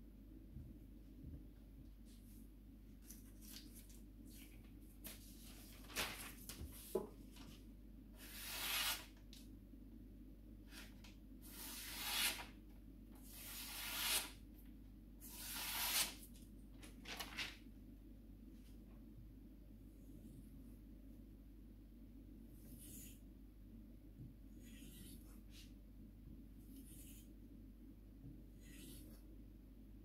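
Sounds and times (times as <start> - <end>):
knife slicing paper: 8.2 - 9.1, 11.5 - 12.5, 13.3 - 14.4, 15.3 - 16.2.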